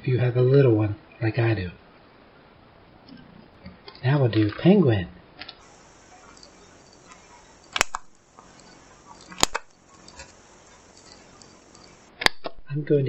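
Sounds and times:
hole punch clicking: 7.7 - 8.1.

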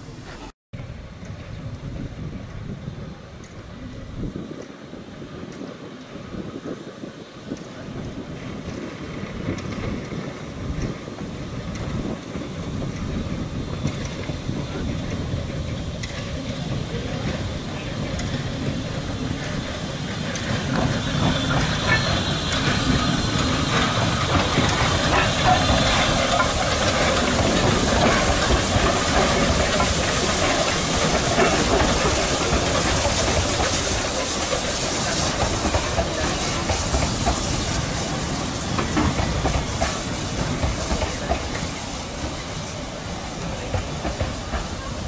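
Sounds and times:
steam locomotive passing: 0.0 - 45.0
train wheels clicking on rails: 0.2 - 45.0
steam hissing: 4.4 - 45.0.

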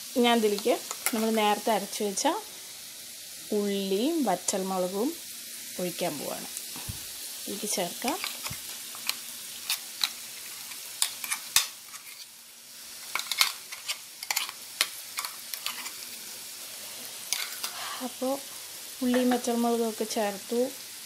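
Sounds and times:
potatoes sizzling in oil: 0.0 - 21.0
spoon scraping metal bowl: 8.0 - 12.3, 13.0 - 16.2, 17.3 - 18.0.

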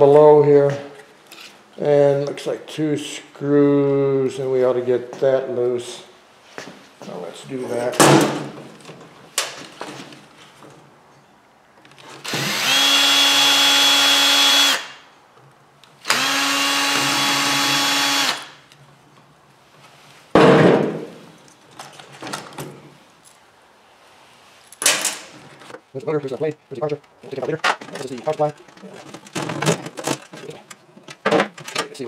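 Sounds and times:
cordless drill whining: 12.2 - 15.0, 16.0 - 18.6
knock: 20.4 - 21.1.

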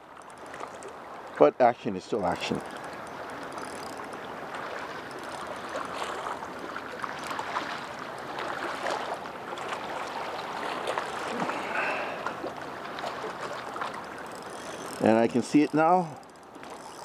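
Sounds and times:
water lapping and splashing: 0.0 - 17.0
fishing reel clicking: 2.3 - 4.3, 5.0 - 5.8, 14.0 - 17.0.

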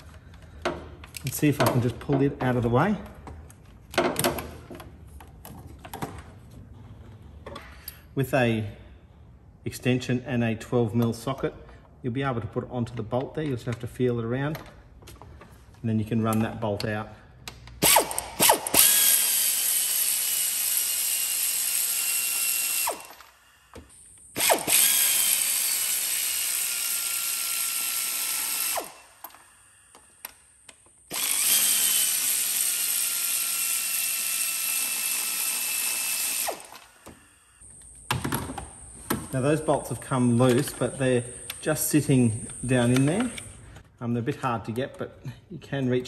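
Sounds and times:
power ratchet whining: 17.8 - 39.2.

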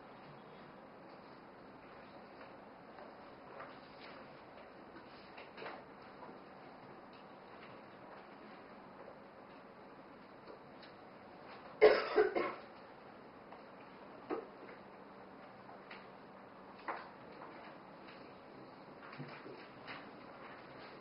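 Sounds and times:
person coughing: 11.8 - 12.6.

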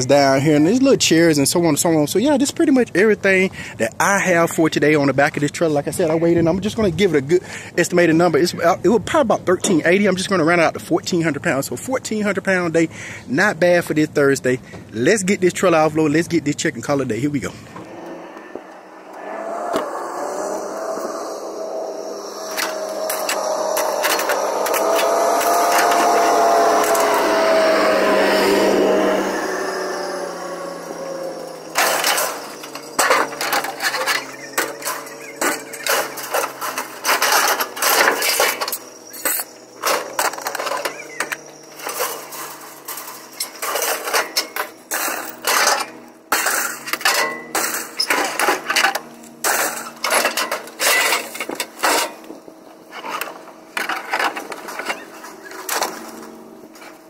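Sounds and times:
scrap metal clanking: 30.8 - 57.0.

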